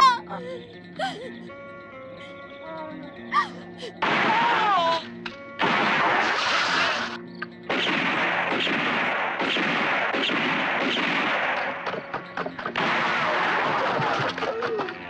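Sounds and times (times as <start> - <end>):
film music: 0.0 - 15.0
heavy gunfire: 4.0 - 4.7, 5.6 - 14.5.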